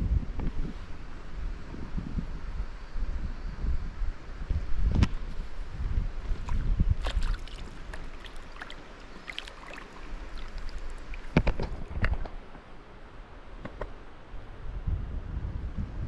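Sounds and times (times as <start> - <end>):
wind rumble on microphone: 0.0 - 16.0
water splashing and dripping: 6.4 - 12.4.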